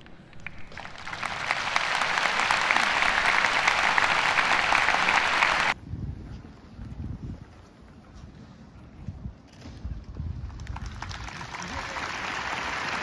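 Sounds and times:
stadium crowd applauding: 0:00.0 - 0:05.8, 0:10.6 - 0:13.0.

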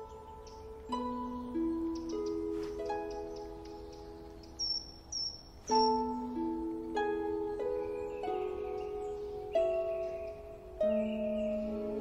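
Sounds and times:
plucked harp-like film music: 0:00.0 - 0:12.0.

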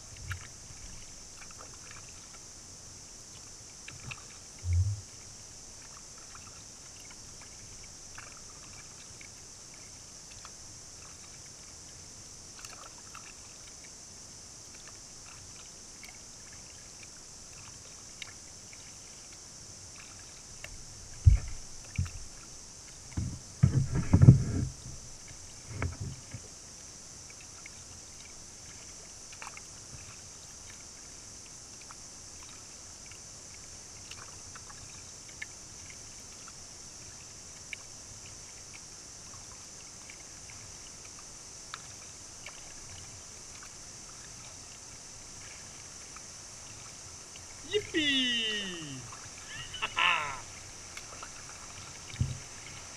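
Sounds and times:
faint water hiss: 0:00.0 - 0:52.9
paddle drips and splashes: 0:00.0 - 0:52.9
dull low knocks: 0:04.6 - 0:05.1, 0:23.2 - 0:25.0, 0:52.2 - 0:52.5.

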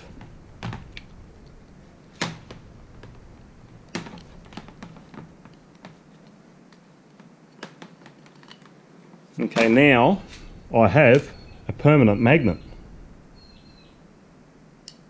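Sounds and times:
wire clicks and rattles: 0:00.0 - 0:06.3.

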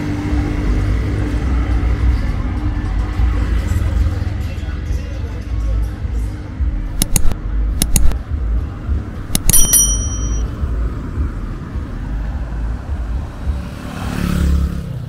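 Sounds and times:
traffic rumble: 0:00.0 - 0:15.0
sharp metallic clicks: 0:06.9 - 0:08.2, 0:09.3 - 0:10.5
small bell ringing: 0:09.3 - 0:10.5
vehicle passing: 0:10.7 - 0:15.0.

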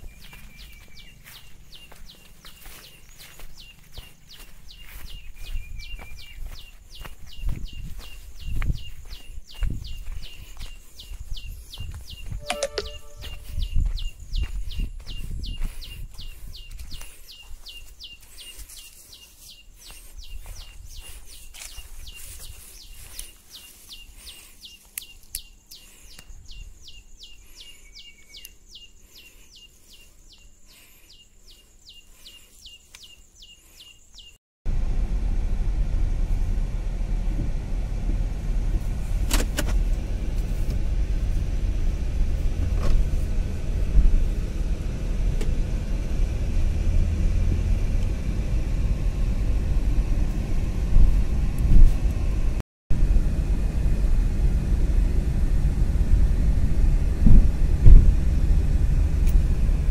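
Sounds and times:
rhythmic high chirping: 0:11.2 - 0:15.4
loud low rumbling: 0:34.7 - 0:59.9.

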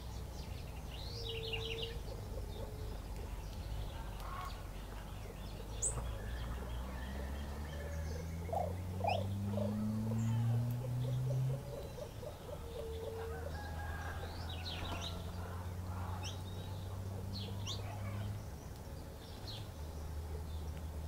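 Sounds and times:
birds chirping: 0:00.0 - 0:21.0
low steady rumble: 0:00.0 - 0:21.0
sharp bird calls: 0:00.8 - 0:18.6
low rising bird calls: 0:00.9 - 0:18.4
low hum rising in pitch: 0:05.5 - 0:13.6.

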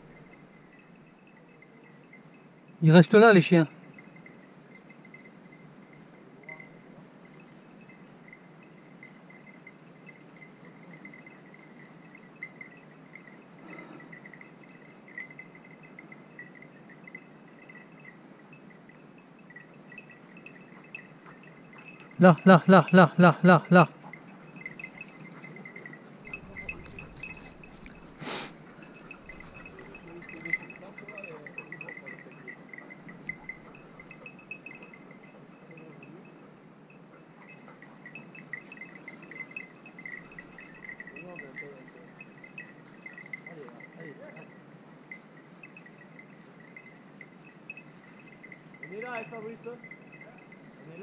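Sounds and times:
faint high clinking: 0:00.0 - 0:51.0
small bells tinkling: 0:00.0 - 0:51.0
hunting dogs baying: 0:20.8 - 0:35.4, 0:36.5 - 0:41.2
brushing rustle: 0:24.3 - 0:34.2.

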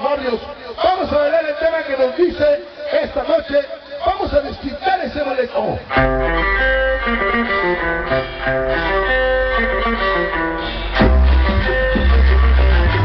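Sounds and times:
loud dance music with guitar: 0:05.8 - 0:13.0
heavy bass line: 0:06.0 - 0:13.0.

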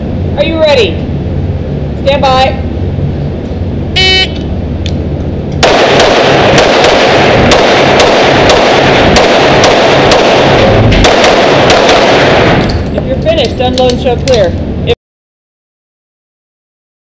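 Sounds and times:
pistol shots echoing: 0:05.6 - 0:12.8.

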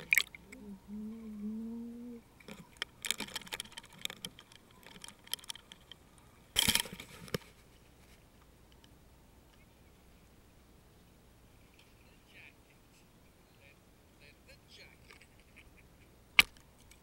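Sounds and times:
crackling clicks on camera housing: 0:02.4 - 0:06.0.

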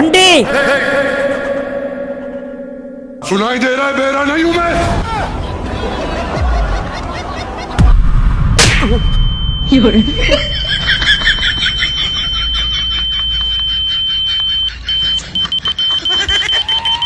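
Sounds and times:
high-pitched ear-ringing beep: 0:08.9 - 0:17.0.

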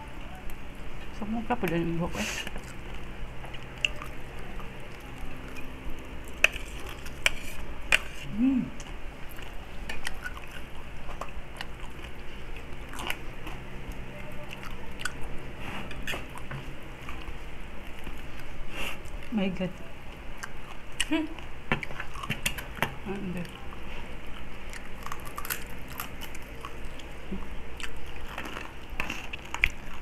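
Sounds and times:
chewing and biting crispy food: 0:02.4 - 0:19.4, 0:23.4 - 0:30.0.

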